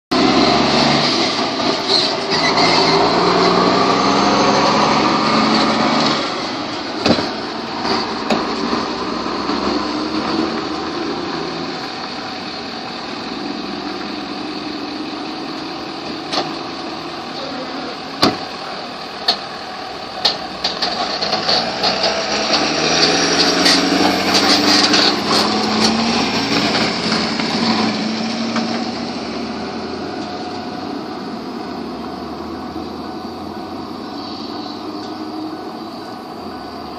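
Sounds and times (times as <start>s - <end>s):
diesel truck driving past: 0.1s - 36.9s
pickup truck passing: 0.1s - 36.9s.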